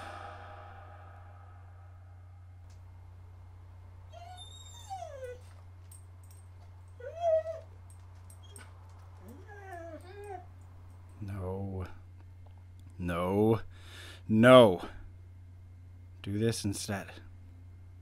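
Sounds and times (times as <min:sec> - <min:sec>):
steady low hum: 0:00.0 - 0:18.0
high whining whimpers: 0:04.1 - 0:05.6, 0:07.0 - 0:07.7, 0:08.4 - 0:10.5.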